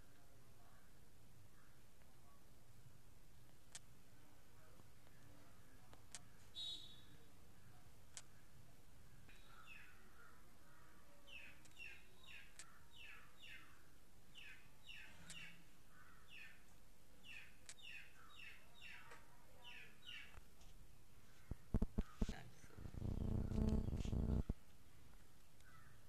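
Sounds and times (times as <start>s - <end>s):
faint bird chirping: 4.2s - 20.4s, 21.2s - 26.0s
sharp ticks: 23.1s - 24.5s.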